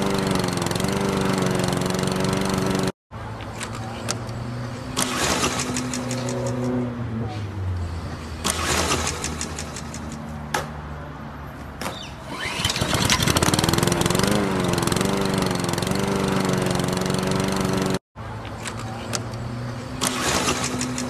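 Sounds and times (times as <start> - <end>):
lawn mower engine running: 0.0 - 2.9, 12.3 - 18.0.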